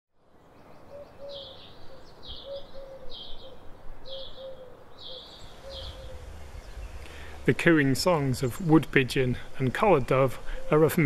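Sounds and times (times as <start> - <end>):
small bird chirping: 0.8 - 7.3
dove cooing: 0.9 - 6.6, 10.4 - 11.0.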